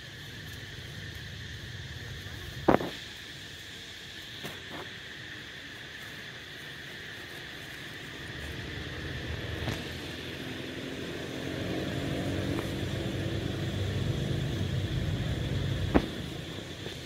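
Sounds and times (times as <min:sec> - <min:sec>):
steady high drone: 0:07.2 - 0:17.0
vehicle engine passing by: 0:08.2 - 0:16.9.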